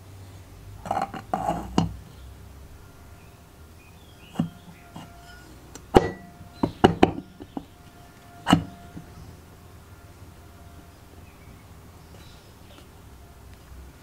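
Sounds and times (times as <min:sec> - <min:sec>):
metal parts knocking and clinking: 0:04.4 - 0:07.7, 0:08.4 - 0:09.2.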